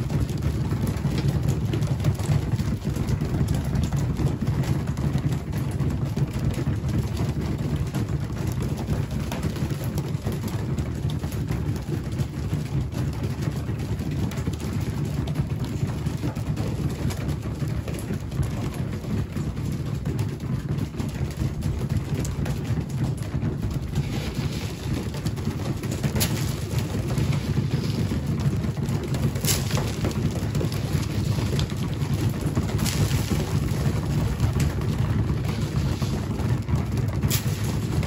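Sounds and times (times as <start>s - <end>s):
pigeons pecking on concrete: 0.0s - 38.0s.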